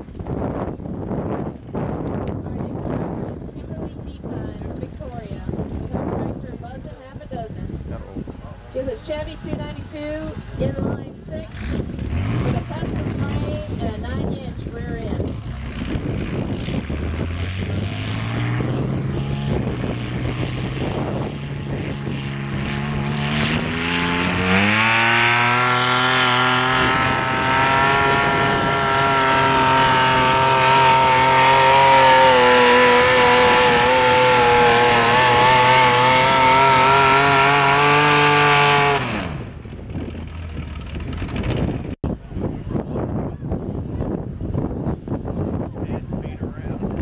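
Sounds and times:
tractor engine revving under load: 0:11.2 - 0:42.0.

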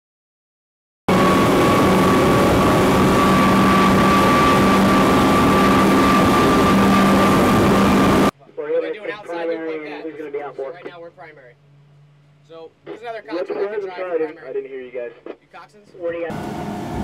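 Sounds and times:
outboard engines droning: 0:01.1 - 0:08.3, 0:16.3 - 0:17.0
rush of boat wake: 0:01.1 - 0:08.3, 0:16.3 - 0:17.0.

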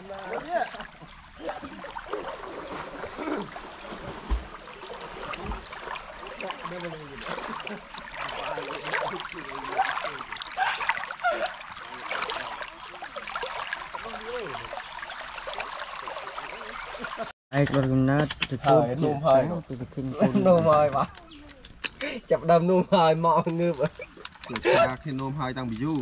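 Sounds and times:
stream babbling over gravel: 0:00.0 - 0:17.3, 0:23.1 - 0:26.0.

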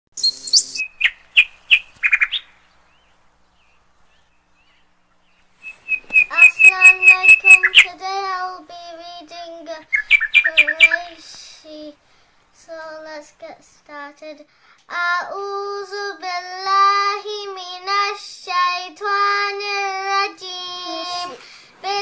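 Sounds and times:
bird-like chirping: 0:00.2 - 0:08.0, 0:09.9 - 0:11.2.

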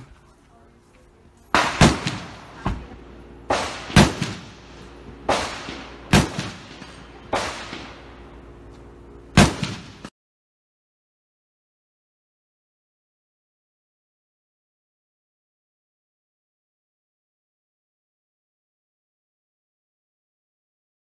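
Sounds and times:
gunshots with ringing echo: 0:01.5 - 0:08.7, 0:09.3 - 0:10.1.

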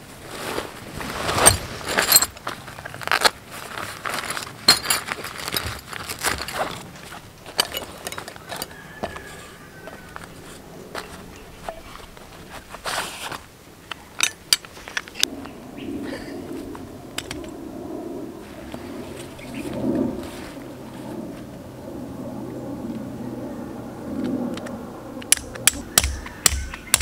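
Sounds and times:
nylon bag rustling: 0:00.0 - 0:08.6
metal tent stakes clinking: 0:04.1 - 0:06.8, 0:07.4 - 0:09.5, 0:14.2 - 0:15.3.

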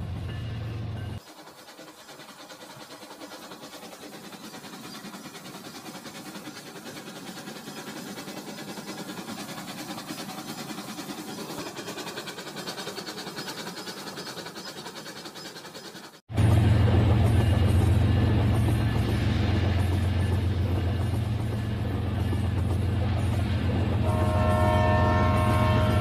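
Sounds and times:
toy train motor whirring: 0:01.2 - 0:16.2
toy train wheels clicking: 0:01.2 - 0:16.2.

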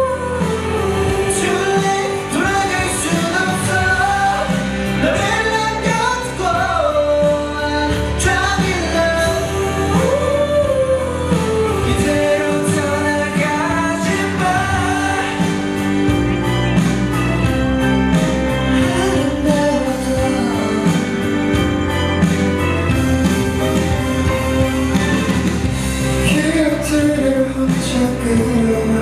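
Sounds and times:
band playing: 0:00.0 - 0:29.0
man singing pop song: 0:00.0 - 0:29.0.

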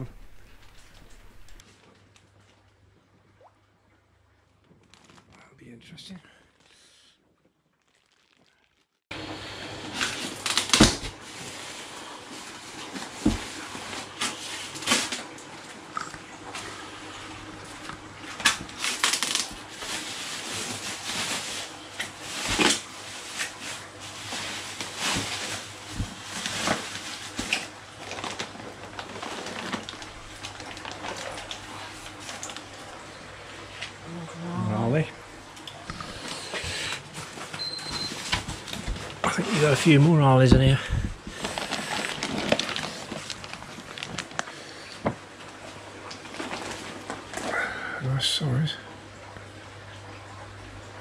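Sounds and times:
steady low hum: 0:00.0 - 0:01.6, 0:09.1 - 0:51.0
bags and boxes rustling and knocking: 0:10.1 - 0:15.3, 0:18.6 - 0:32.7, 0:36.2 - 0:44.4.

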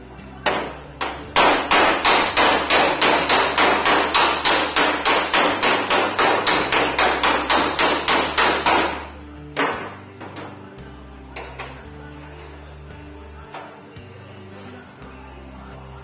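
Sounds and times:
hammer on chisel against sheet metal: 0:00.4 - 0:10.0.

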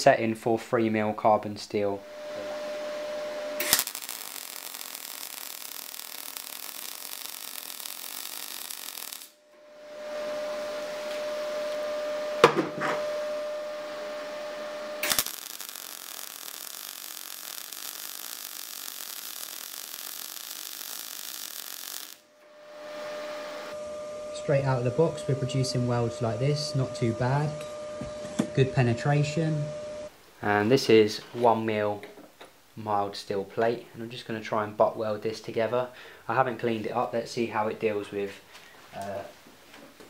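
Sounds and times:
welding arc crackling: 0:03.2 - 0:09.4, 0:15.0 - 0:23.8.

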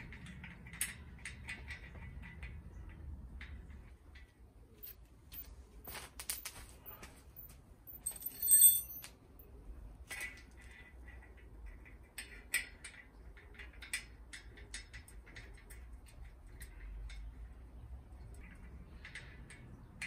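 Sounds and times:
metal piece clinking: 0:07.9 - 0:09.2.

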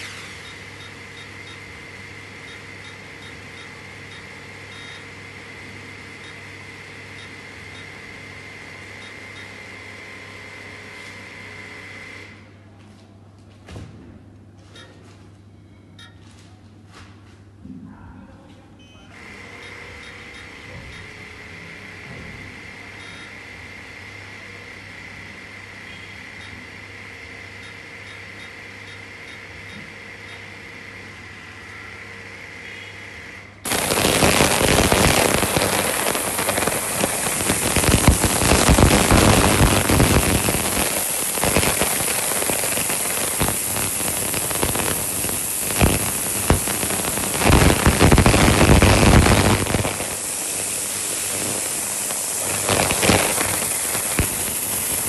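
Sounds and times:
faint hum with high tone: 0:00.0 - 0:55.0
harsh crackling hiss: 0:33.7 - 0:55.0.

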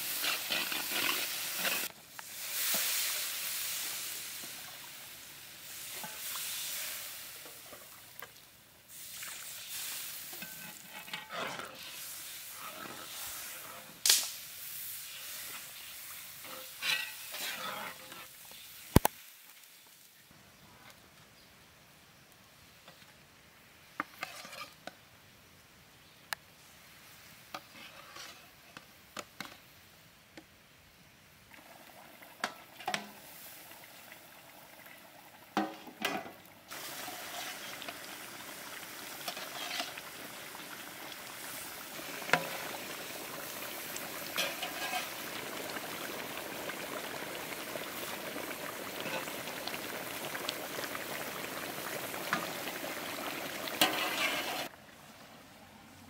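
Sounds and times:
hot gravy sizzling and bubbling: 0:00.0 - 0:20.4, 0:22.7 - 0:55.3
metal spatula clinking and scraping: 0:10.3 - 0:12.0, 0:16.4 - 0:18.3, 0:24.2 - 0:24.8, 0:44.4 - 0:45.1, 0:53.8 - 0:54.7.

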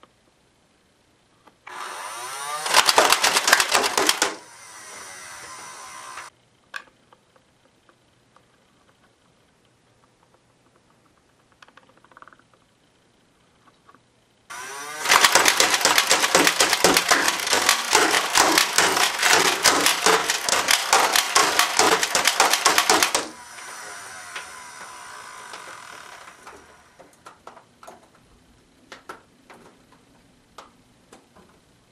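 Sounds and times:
foam dart blaster motor whirring: 0:01.7 - 0:06.3, 0:14.5 - 0:27.2
rapid clattering dart firing: 0:02.4 - 0:04.5, 0:14.5 - 0:27.5.

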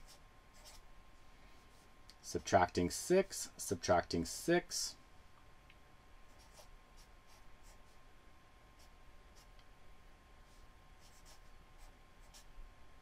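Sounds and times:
marker scratching on paper: 0:00.0 - 0:00.9, 0:06.3 - 0:08.0, 0:10.5 - 0:12.5.

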